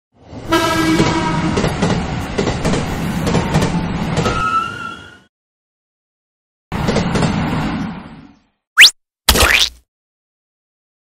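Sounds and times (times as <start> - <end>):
train horn blast: 0.5 - 1.6
train wheels clattering over rails: 1.0 - 4.4
high wheel squeal: 4.2 - 5.3.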